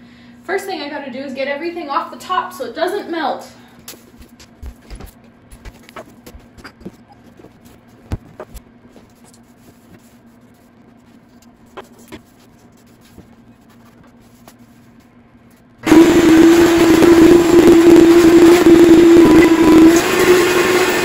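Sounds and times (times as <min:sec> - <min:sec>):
faint steady hum: 0:00.0 - 0:15.9.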